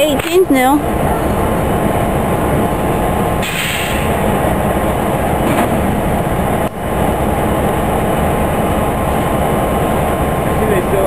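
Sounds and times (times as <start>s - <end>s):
diesel locomotives idling: 0.0s - 11.0s
brief hiss: 3.4s - 4.2s.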